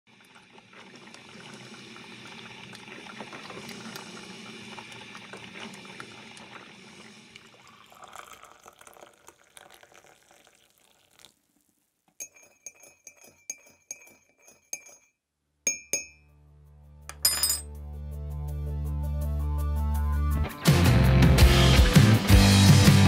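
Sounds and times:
liquid bubbling: 0.1s - 12.1s
spoon clinking against mug: 12.2s - 15.1s, 15.7s - 16.2s, 17.1s - 17.7s
music with deep bass: 18.4s - 23.0s.

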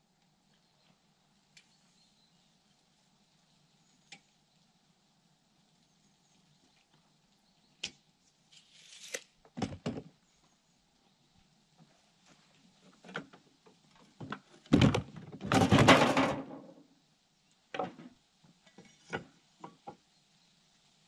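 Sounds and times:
loud wood scrape: 8.5s - 9.3s.

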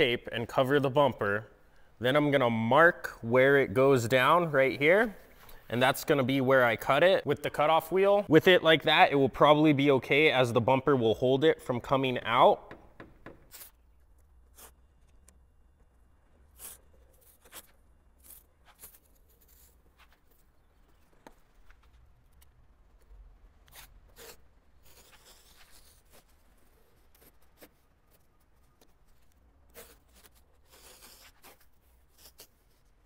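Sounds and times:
tape tearing: 13.5s - 13.8s, 29.7s - 32.8s.

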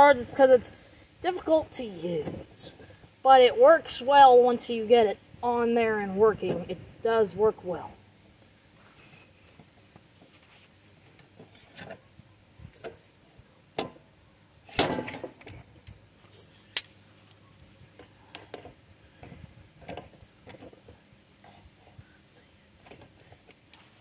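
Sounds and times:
metal clinks and clatter: 16.8s - 17.0s.

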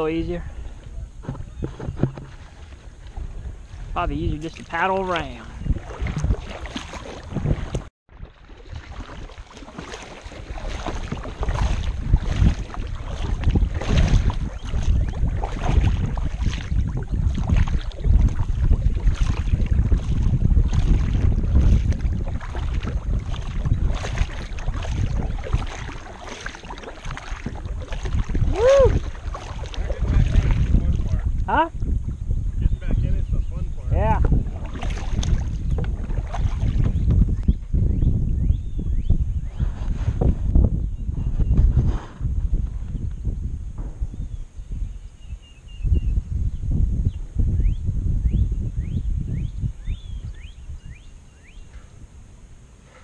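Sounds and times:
kayak paddle splashing: 0.0s - 32.0s, 34.0s - 37.9s
wind buffeting microphone: 0.0s - 53.0s.

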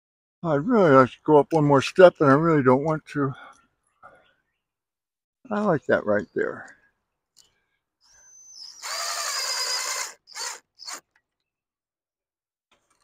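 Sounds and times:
power drill driving a screw: 8.6s - 11.2s.

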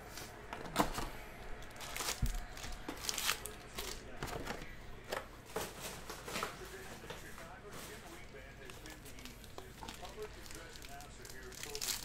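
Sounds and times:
foil packs crinkling: 1.6s - 4.6s, 5.5s - 12.0s.

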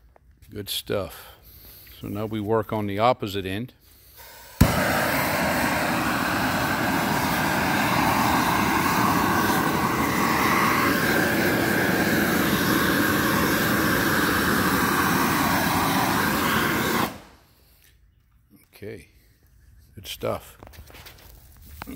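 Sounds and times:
gas heat gun flame rushing: 4.2s - 17.5s.

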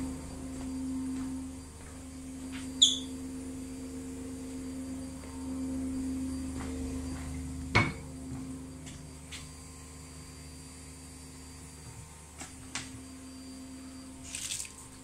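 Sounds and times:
low hum: 0.0s - 12.4s
high-pitched chirp: 2.8s - 3.2s.

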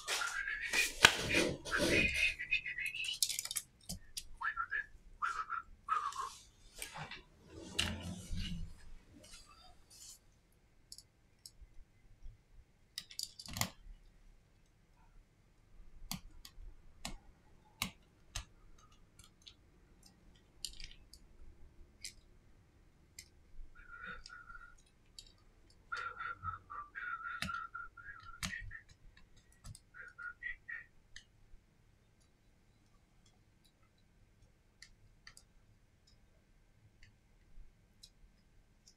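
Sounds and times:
small clicks and taps of tool: 13.0s - 13.8s, 33.2s - 36.3s.

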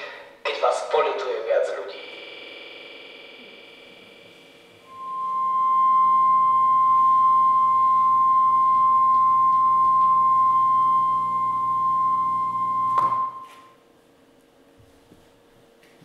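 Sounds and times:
high electronic tone: 1.7s - 13.8s.

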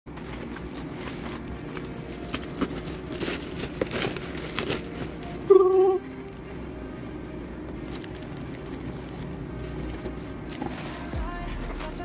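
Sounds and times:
plastic packaging crinkling: 0.1s - 5.5s, 7.8s - 9.4s.

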